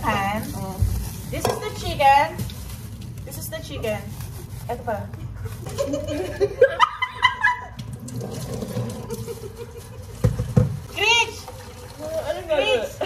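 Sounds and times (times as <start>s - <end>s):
women laughing: 5.5s - 7.8s, 9.0s - 10.2s.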